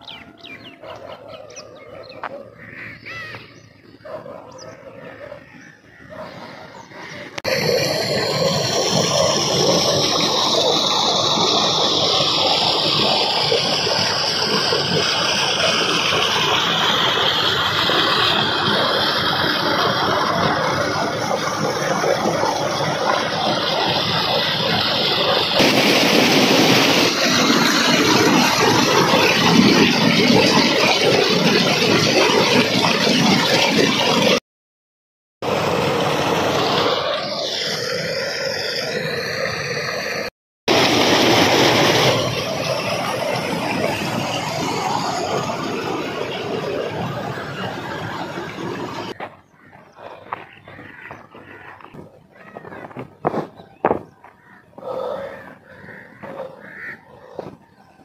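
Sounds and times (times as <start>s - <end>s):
faint outdoor sounds: 0.0s - 7.4s, 49.2s - 58.0s
water gushing into tank: 7.3s - 34.4s, 35.4s - 49.2s.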